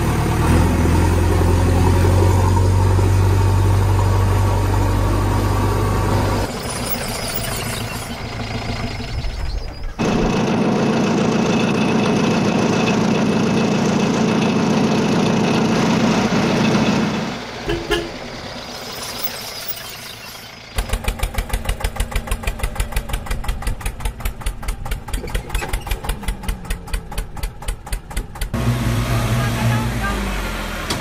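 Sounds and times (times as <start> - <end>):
loud engine running: 0.0 - 31.0
engine idling with fast chug: 16.5 - 19.2, 19.8 - 28.6.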